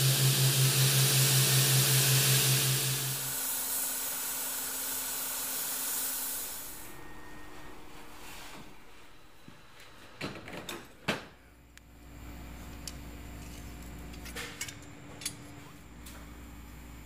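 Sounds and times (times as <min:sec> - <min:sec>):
low steady hum: 0:06.6 - 0:10.1.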